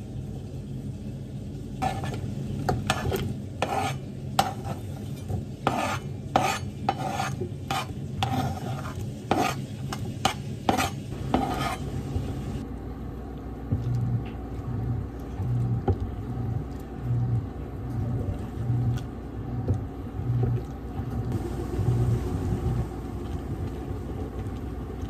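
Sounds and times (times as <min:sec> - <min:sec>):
spatula stirring in a pot: 0:01.7 - 0:12.6
knife scraping cutting board: 0:01.8 - 0:12.6.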